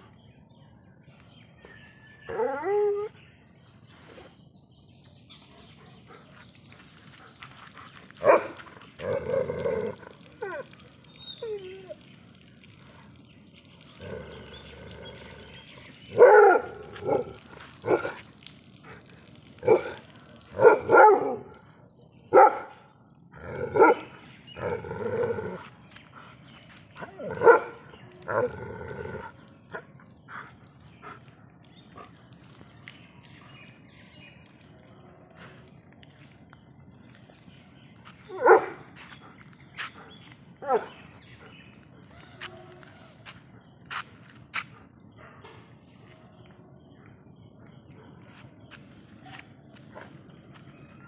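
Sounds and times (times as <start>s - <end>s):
dog barking: 8.2s - 8.6s, 20.6s - 21.5s, 22.3s - 22.8s, 23.8s - 24.1s, 27.4s - 27.8s, 38.4s - 38.8s.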